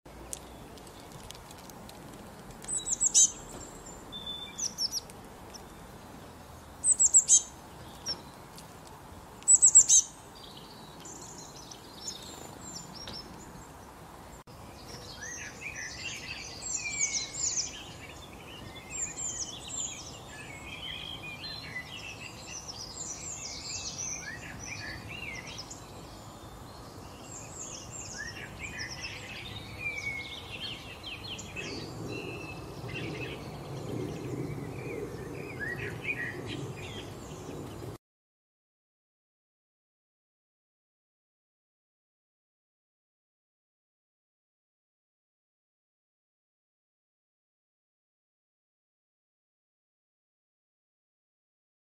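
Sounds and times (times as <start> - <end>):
songbirds chirping and trilling: 0.1 - 38.0.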